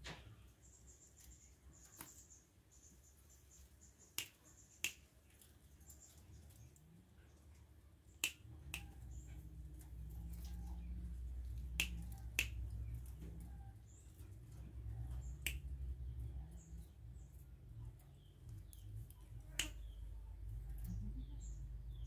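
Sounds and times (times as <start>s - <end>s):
finger snaps: 4.2s - 5.0s, 8.2s - 8.9s, 11.7s - 12.7s, 15.4s - 15.8s, 19.5s - 19.9s.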